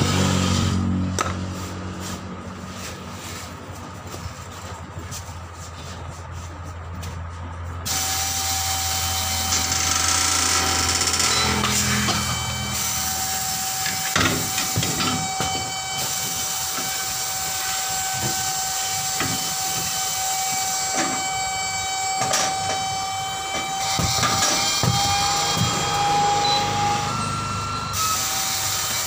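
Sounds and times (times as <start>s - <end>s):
tyre changer whine: 0.0s - 29.0s
compressed air hissing: 7.9s - 9.0s
knocks and rubs on a tyre: 23.6s - 26.1s.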